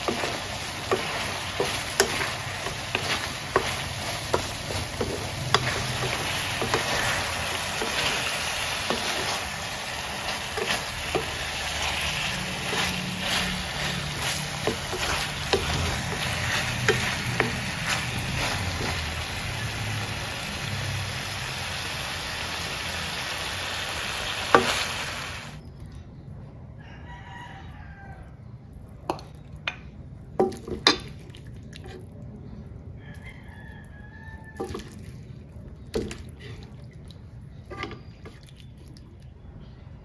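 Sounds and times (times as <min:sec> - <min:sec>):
spatula scraping a pan: 0:00.0 - 0:19.2, 0:37.6 - 0:38.4
chicken sizzling in a pan: 0:00.0 - 0:25.6.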